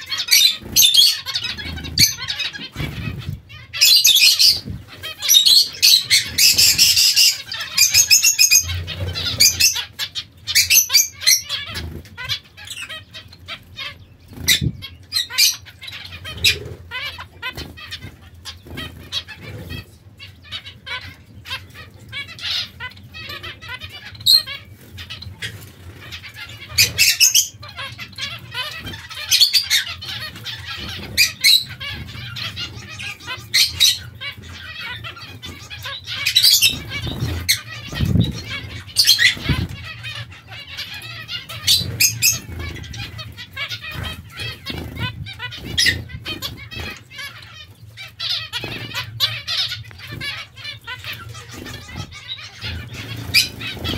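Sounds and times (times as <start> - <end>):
high bird calls: 0.0 - 53.9
wing flutters: 48.2 - 53.9.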